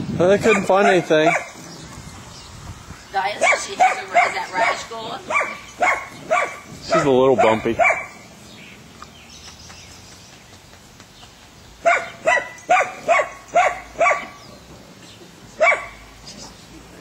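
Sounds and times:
dog barking: 0.4s - 1.6s, 3.4s - 8.2s, 11.8s - 14.4s, 15.6s - 16.0s.

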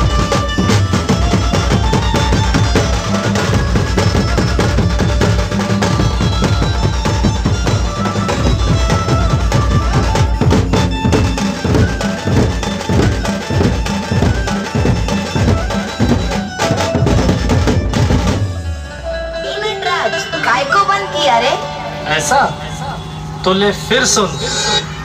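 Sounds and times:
large drums beaten in fast rhythm: 0.0s - 19.0s
held melodic notes: 0.0s - 25.0s.

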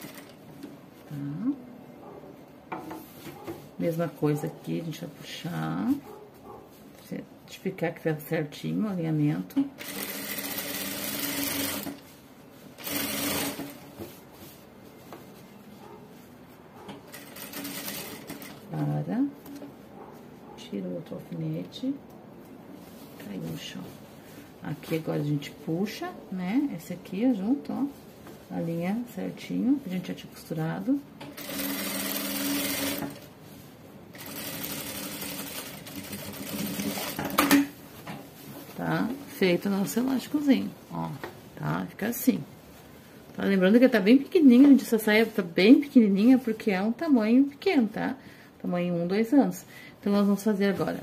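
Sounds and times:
sewing machine stitching: 9.8s - 12.0s, 12.8s - 13.9s, 17.1s - 18.6s, 31.3s - 33.3s, 34.1s - 37.7s.

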